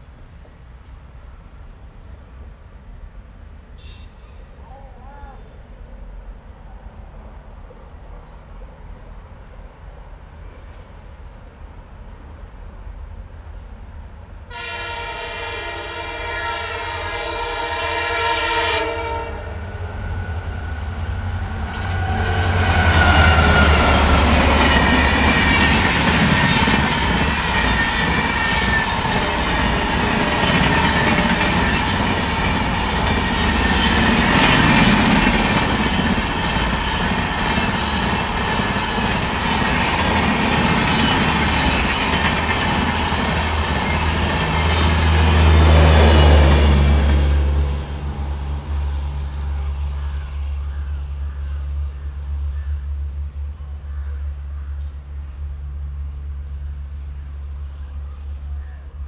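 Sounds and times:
locomotive horn: 0:14.5 - 0:20.3, 0:21.4 - 0:25.8
locomotive passing with whine: 0:16.6 - 0:59.0
train wheels clickety-clack: 0:21.6 - 0:47.6.

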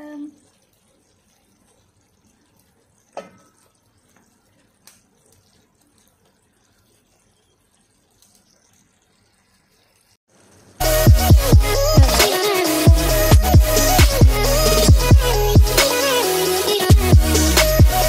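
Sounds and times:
loud electronic music: 0:10.8 - 0:18.0.

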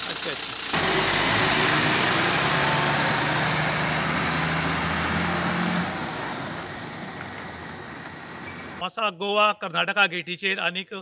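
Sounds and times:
road noise: 0:00.0 - 0:08.8
truck engine driving past: 0:00.6 - 0:08.8.

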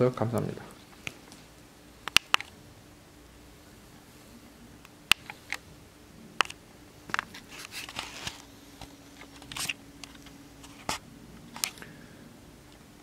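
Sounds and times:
faint steady hum: 0:00.0 - 0:13.0
handling noise rustles: 0:07.0 - 0:11.8.

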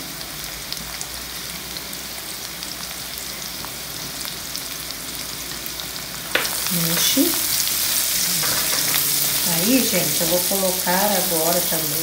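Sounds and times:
onion sizzling in oil: 0:00.0 - 0:12.0.

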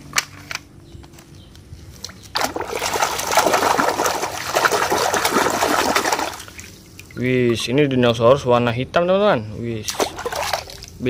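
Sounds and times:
hand splashing in water: 0:02.1 - 0:07.6, 0:09.9 - 0:11.0.

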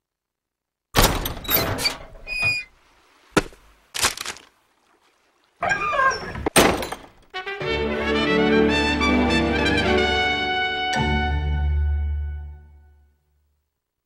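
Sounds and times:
brass-led orchestral music: 0:07.4 - 0:13.0.

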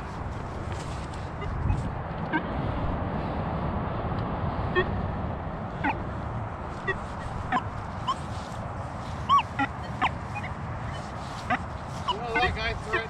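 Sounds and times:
birds calling: 0:06.8 - 0:13.0.

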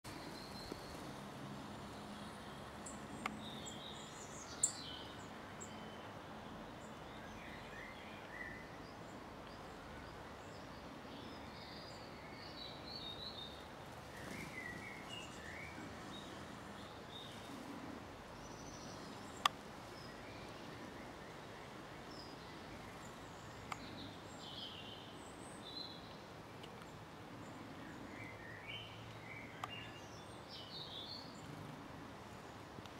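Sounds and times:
songbirds calling: 0:00.0 - 0:32.9
steady background hiss: 0:00.1 - 0:32.9.

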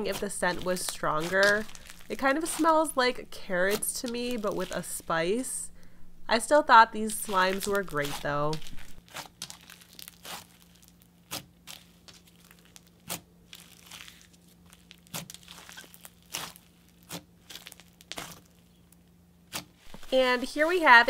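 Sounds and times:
slime crackling fizz: 0:00.0 - 0:05.3, 0:07.0 - 0:12.9, 0:13.5 - 0:18.7.

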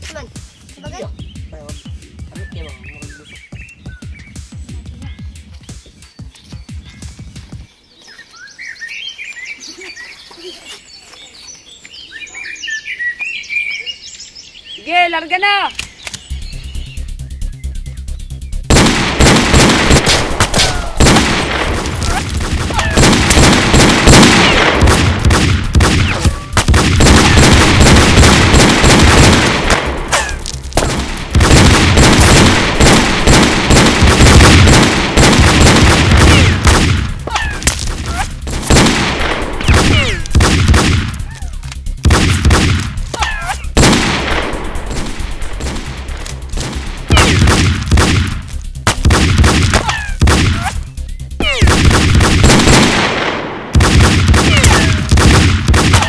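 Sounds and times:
rapid gunshots: 0:18.6 - 0:41.3, 0:42.0 - 0:50.8, 0:51.4 - 0:56.0.

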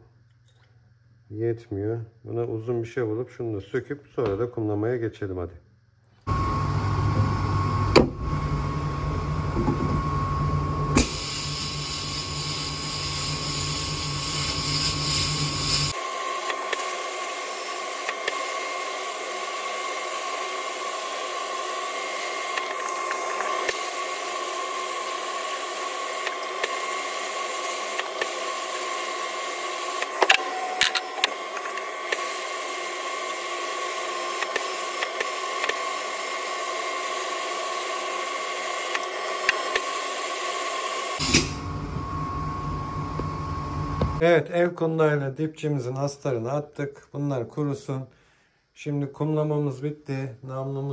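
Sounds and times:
blast gun hissing with whine: 0:10.9 - 0:41.8.

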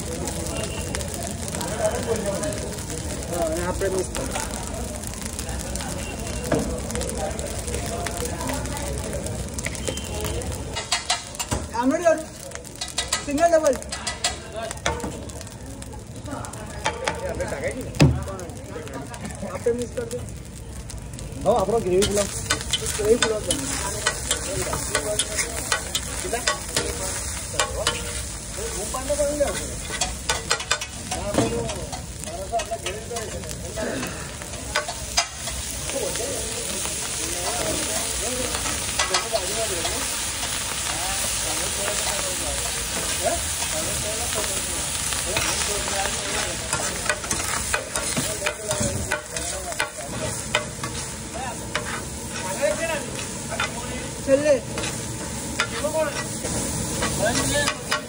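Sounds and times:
frying sizzle: 0:00.0 - 0:58.0
metal spatula scraping griddle: 0:22.0 - 0:35.7, 0:45.2 - 0:58.0.

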